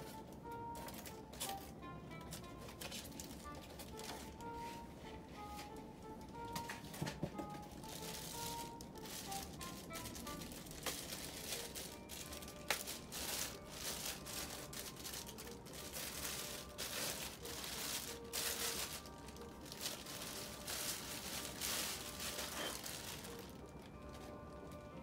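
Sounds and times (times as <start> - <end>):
plastic bag crinkling: 2.4 - 4.6, 7.5 - 24.8.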